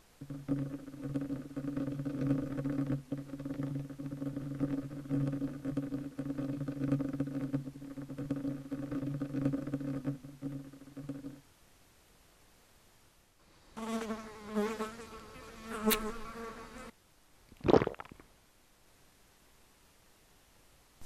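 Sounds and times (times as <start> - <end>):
low insect-like buzzing: 0.0 - 11.4, 13.8 - 16.9.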